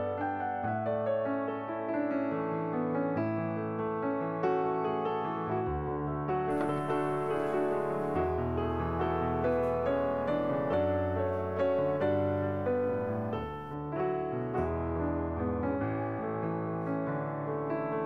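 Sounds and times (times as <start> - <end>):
slow piano music: 0.0 - 18.0.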